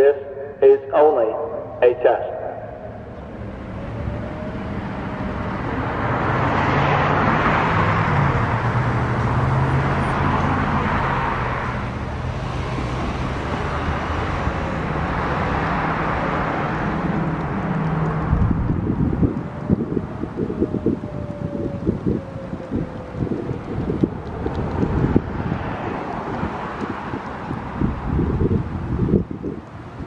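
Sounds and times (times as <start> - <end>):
vehicle passing: 1.5 - 30.0
low engine hum: 2.4 - 30.0.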